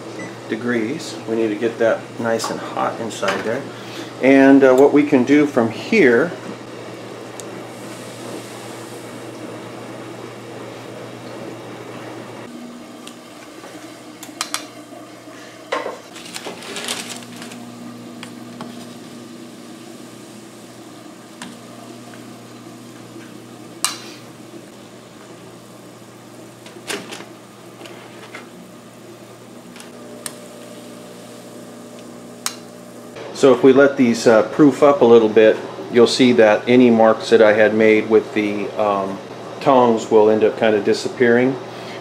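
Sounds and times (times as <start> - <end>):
water boiling in a pot: 6.7 - 26.7, 28.6 - 33.2.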